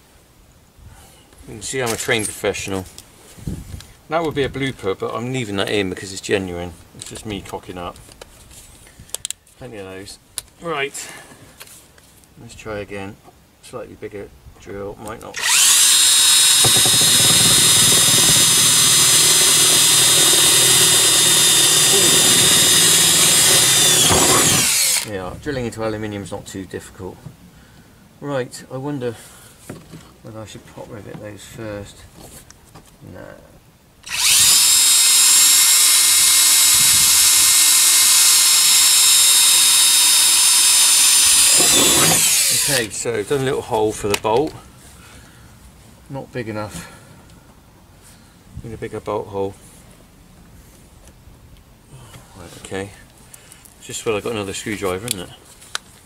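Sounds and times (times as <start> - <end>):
cordless drill boring through metal: 15.4 - 25.1, 34.0 - 42.9.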